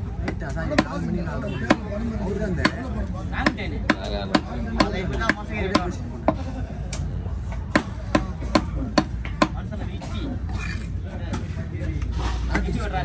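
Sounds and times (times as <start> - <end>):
knife chopping on wooden block: 2.6 - 2.8, 3.4 - 6.0.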